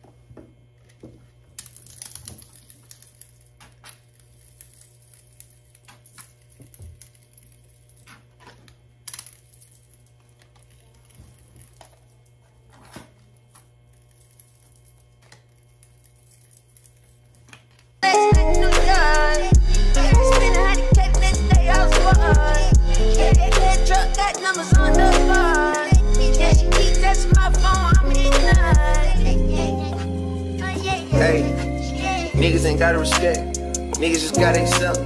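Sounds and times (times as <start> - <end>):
low steady hum: 0.0 - 35.0
hip hop music: 18.0 - 35.0.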